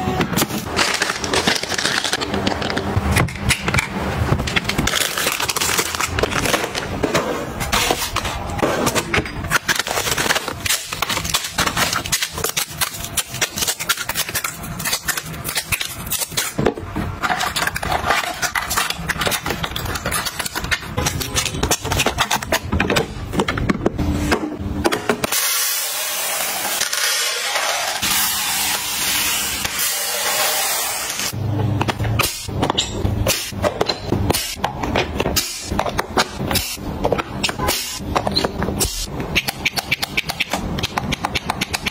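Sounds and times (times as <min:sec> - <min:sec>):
plastic packets clicking and tapping: 0:00.4 - 0:03.8, 0:04.4 - 0:07.0, 0:39.1 - 0:41.9
plastic packaging crinkling: 0:00.6 - 0:02.9.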